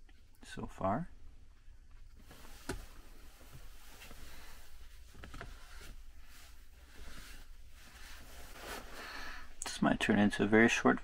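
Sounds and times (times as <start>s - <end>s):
cloth rustling: 2.1s - 9.6s.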